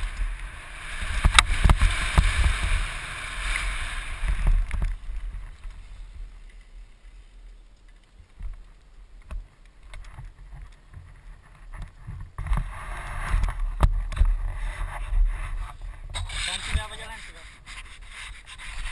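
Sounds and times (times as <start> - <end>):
wind rushing over microphone: 0.0 - 6.2
bike knocking on gravel: 1.0 - 2.8.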